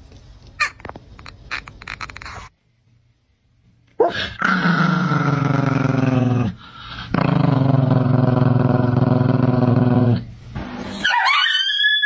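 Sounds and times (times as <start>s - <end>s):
small dog growling: 4.0s - 10.2s.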